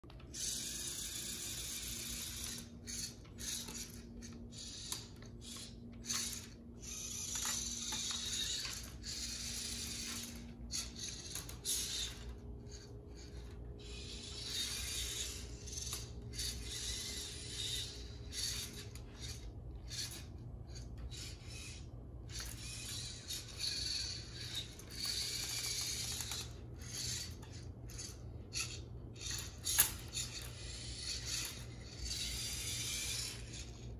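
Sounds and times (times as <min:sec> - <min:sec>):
small electric motors whirring: 0:00.1 - 0:33.9.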